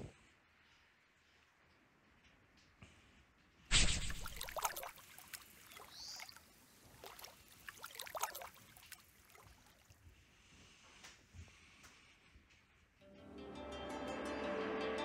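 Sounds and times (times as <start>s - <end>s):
fish splashing in water: 3.7s - 10.0s.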